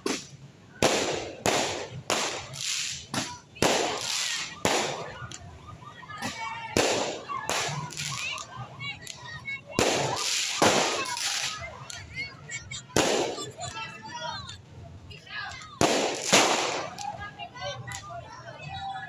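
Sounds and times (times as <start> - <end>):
fireworks bangs with echo: 0.0 - 5.4, 6.2 - 8.4, 9.7 - 11.6, 12.9 - 13.6, 15.8 - 17.2.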